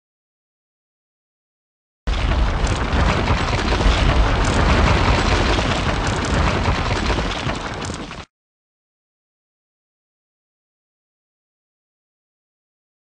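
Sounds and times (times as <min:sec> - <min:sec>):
concrete wall crumbling: 0:02.1 - 0:08.3.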